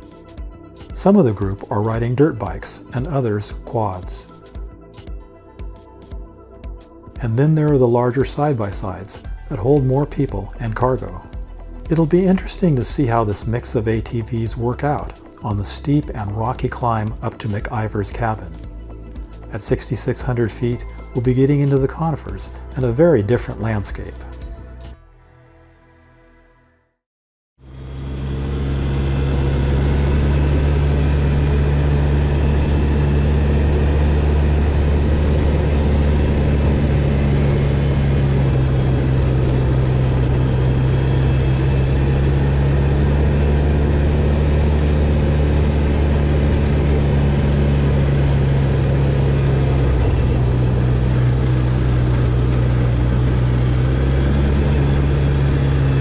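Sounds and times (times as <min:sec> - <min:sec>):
quad engine drone: 0:00.8 - 0:04.6, 0:07.2 - 0:24.3, 0:27.6 - 0:56.0
road and wind noise: 0:27.6 - 0:56.0.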